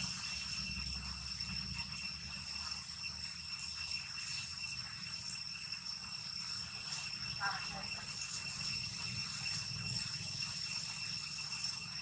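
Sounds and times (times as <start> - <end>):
insects buzzing: 3.6 - 12.0.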